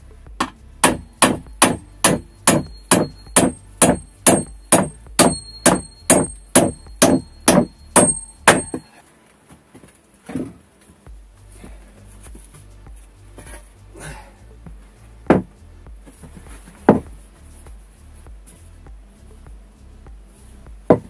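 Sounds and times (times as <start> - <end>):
hammer driving nails into wood: 0.4 - 8.9, 15.3 - 15.5
metallic ring: 1.1 - 9.0.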